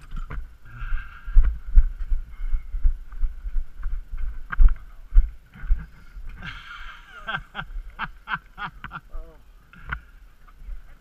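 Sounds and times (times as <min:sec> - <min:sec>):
voices: 0:04.4 - 0:11.0.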